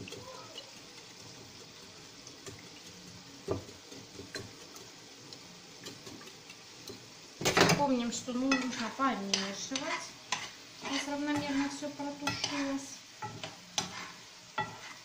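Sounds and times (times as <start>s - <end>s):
whisk beating eggs in bowl: 0.0s - 5.1s.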